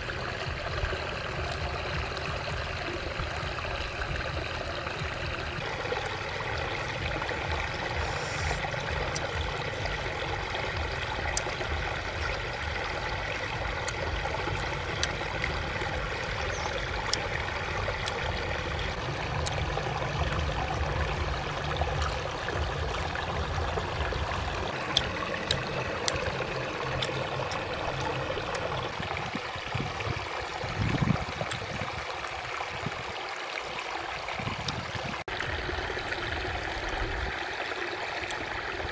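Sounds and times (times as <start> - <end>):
low rumble: 0.0 - 29.2
stream rushing and trickling: 0.0 - 38.9.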